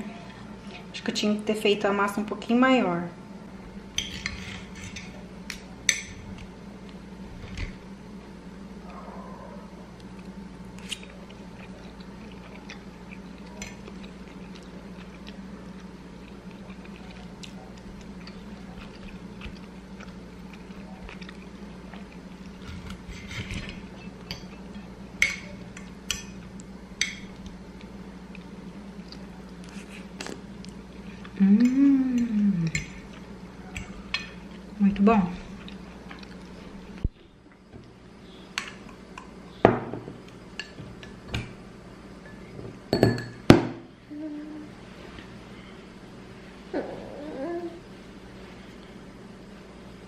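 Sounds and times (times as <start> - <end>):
steady low hum: 0.0 - 50.0
person humming: 31.4 - 32.8, 44.0 - 44.8, 46.7 - 47.8.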